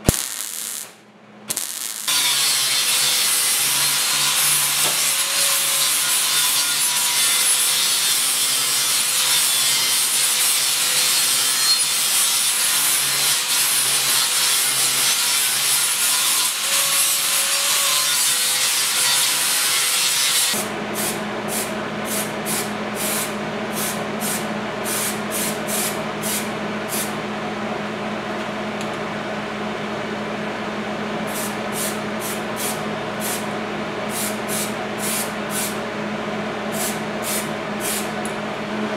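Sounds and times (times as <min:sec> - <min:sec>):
angle grinder grinding steel: 0:01.5 - 0:20.6.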